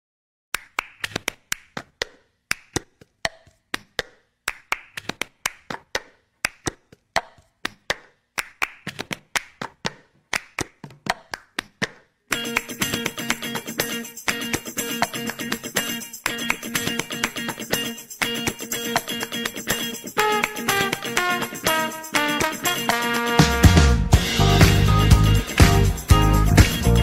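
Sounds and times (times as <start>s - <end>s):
sharp rhythmic claps: 0.6s - 27.0s.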